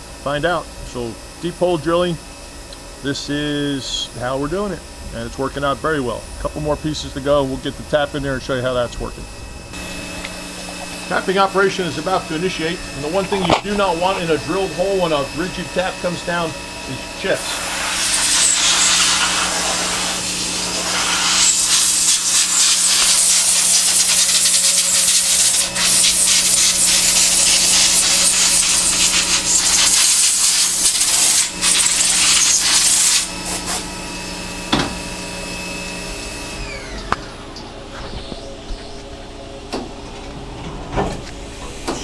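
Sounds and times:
steady machine hum: 0:00.0 - 0:42.0
compressed air blow gun hissing: 0:17.2 - 0:33.9.

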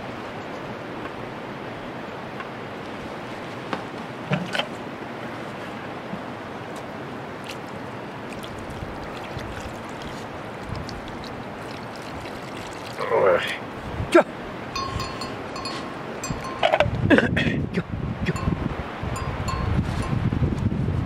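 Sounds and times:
river rushing: 0:00.0 - 0:17.1, 0:17.9 - 0:20.2.

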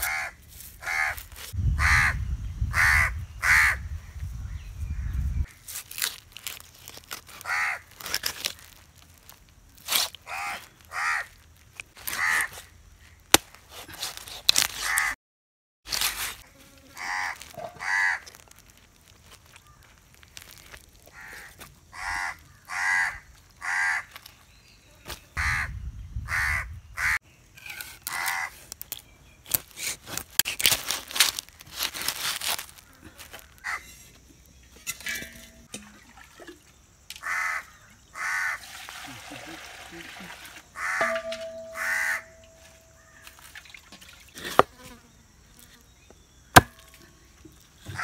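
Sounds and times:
crows cawing: 0:00.0 - 0:01.2, 0:01.8 - 0:03.8, 0:07.4 - 0:07.9, 0:10.3 - 0:11.4, 0:12.1 - 0:12.5, 0:17.0 - 0:18.4, 0:21.1 - 0:24.2, 0:25.4 - 0:25.7, 0:26.3 - 0:27.2, 0:28.1 - 0:28.5, 0:32.8 - 0:33.9, 0:37.2 - 0:38.6, 0:40.8 - 0:43.4.

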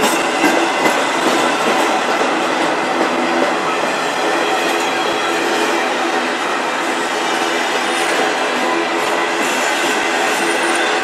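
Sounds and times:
train wheels clattering on rails: 0:00.0 - 0:11.0.

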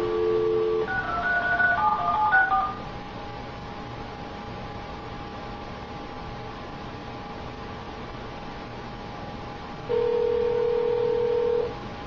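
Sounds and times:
faint steady hum: 0:00.0 - 0:12.0
telephone dial tone: 0:09.9 - 0:11.7.

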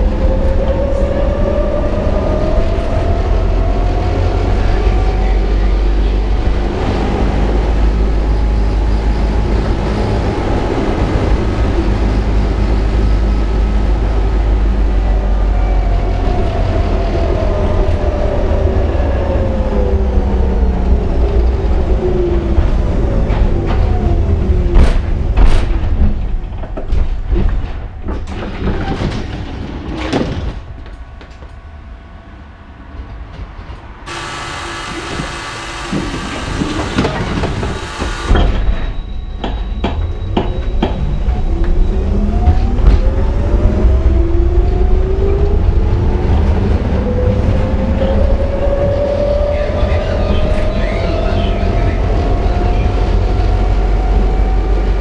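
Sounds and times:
low rumble: 0:00.0 - 0:39.4
tram motor whine: 0:30.3 - 0:55.0
tram wheels clicking on track: 0:32.8 - 0:41.5.

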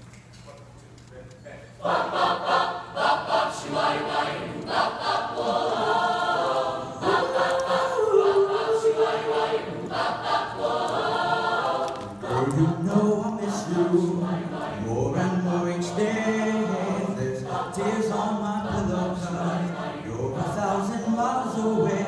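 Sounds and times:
choir singing: 0:01.8 - 0:22.0.

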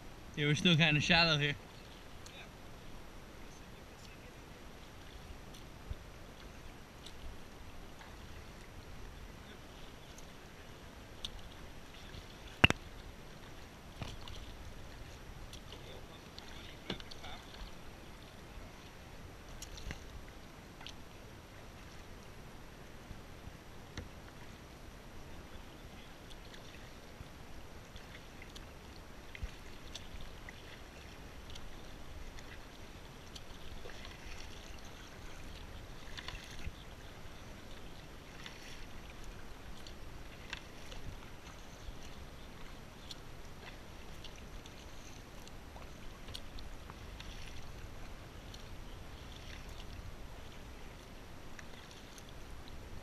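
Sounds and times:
paddle splashing in water: 0:04.2 - 0:22.1, 0:25.2 - 0:53.0
water dripping: 0:12.6 - 0:13.0.

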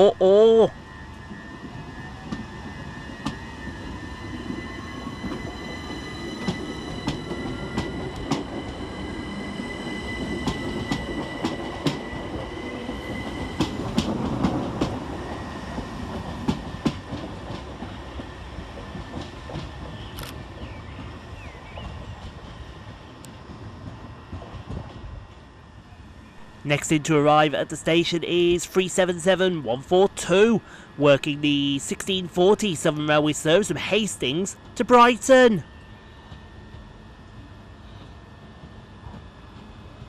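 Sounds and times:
train rumble: 0:00.0 - 0:40.0
electric train motor whine: 0:00.8 - 0:16.4.

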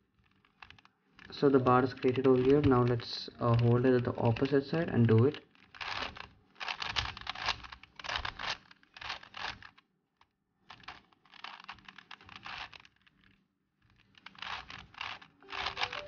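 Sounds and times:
puzzle cube clicking clatter: 0:00.1 - 0:09.8, 0:10.6 - 0:16.0.

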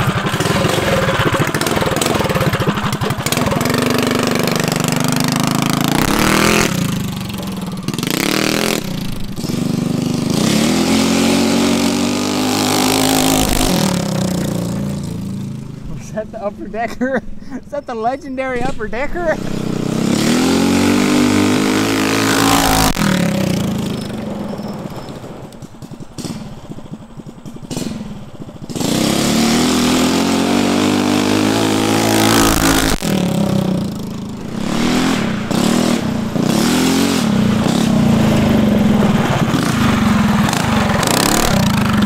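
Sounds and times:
mini bike engine at full throttle: 0:00.0 - 0:16.2, 0:18.6 - 0:42.0.

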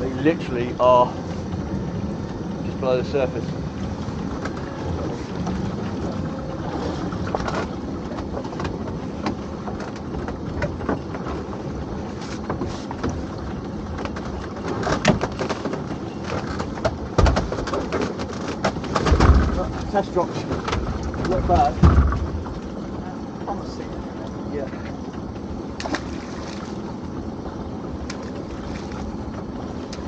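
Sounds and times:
pot hauler and engine humming: 0:00.0 - 0:30.0
heavy knock of pot on boat: 0:20.5 - 0:22.6.

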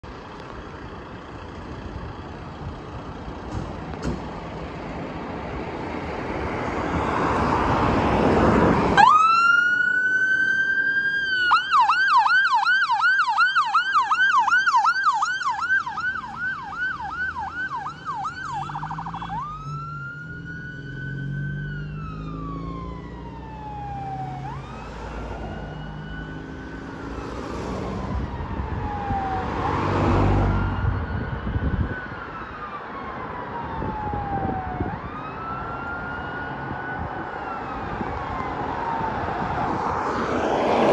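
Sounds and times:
fire engine and road noise: 0:00.0 - 0:40.9
siren wailing and yelping: 0:09.0 - 0:40.1.

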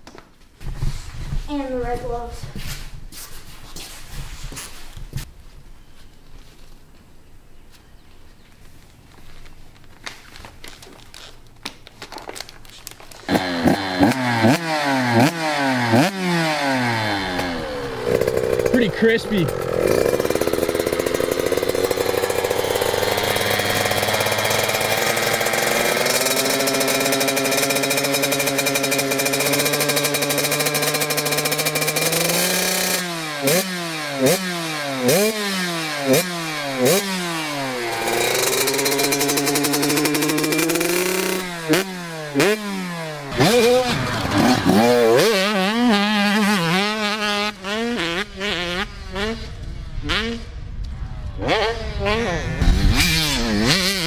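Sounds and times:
motocross bike engine revving: 0:13.3 - 0:54.0.

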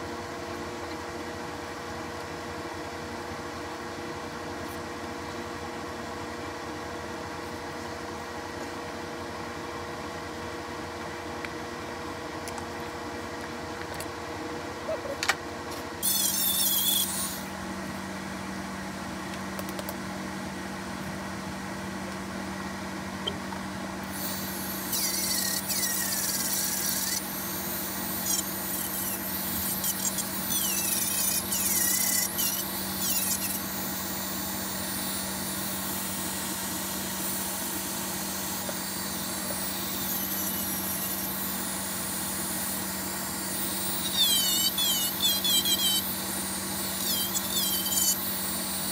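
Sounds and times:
bit grinding leather squeals: 0:16.0 - 0:17.5, 0:24.1 - 0:36.0, 0:36.7 - 0:48.9
rotary tool running: 0:16.0 - 0:17.5, 0:24.0 - 0:48.9.

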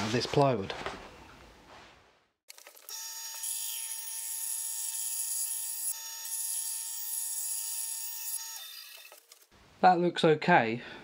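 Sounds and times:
bandsaw whining: 0:02.9 - 0:09.2.

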